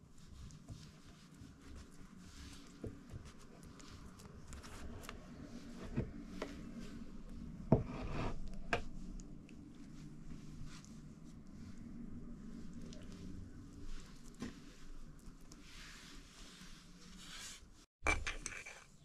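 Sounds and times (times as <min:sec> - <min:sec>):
dough rubbing and squishing: 0:00.0 - 0:17.9.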